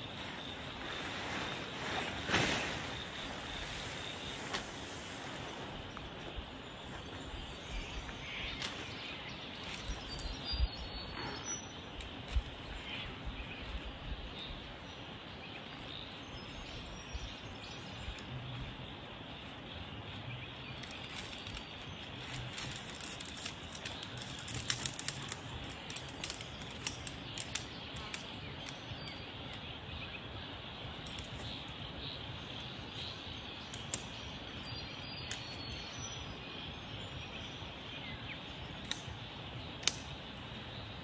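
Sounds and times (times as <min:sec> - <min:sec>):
outdoor hiss: 0:00.0 - 0:18.1
birds chirping: 0:00.0 - 0:41.0
tent poles clicking together: 0:00.2 - 0:06.2, 0:08.4 - 0:10.5, 0:20.7 - 0:29.7, 0:30.8 - 0:31.8, 0:33.6 - 0:35.8, 0:38.7 - 0:40.4.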